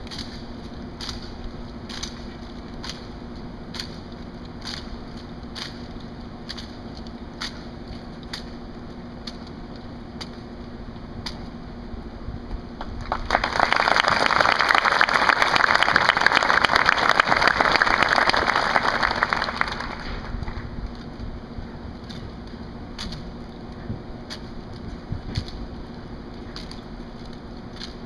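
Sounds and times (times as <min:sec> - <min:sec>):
crowd applause: 0:13.0 - 0:20.6.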